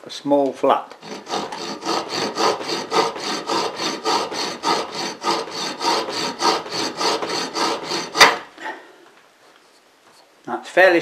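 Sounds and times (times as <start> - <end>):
rasp filing aluminium: 1.0 - 8.5.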